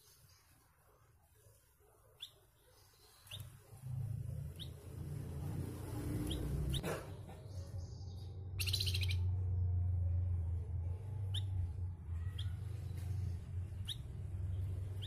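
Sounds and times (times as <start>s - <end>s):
songbird chirping: 1.5s - 10.3s, 10.9s - 15.0s
low rumble: 3.8s - 15.0s.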